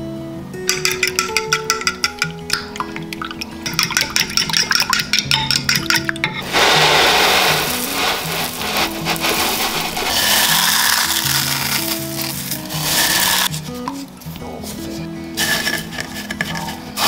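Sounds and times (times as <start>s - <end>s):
background music: 0.0s - 17.0s
corn flakes pouring into bowl: 6.4s - 13.5s, 15.4s - 17.0s
flakes crunching: 6.4s - 13.5s
spoon scraping ceramic dish: 15.4s - 17.0s.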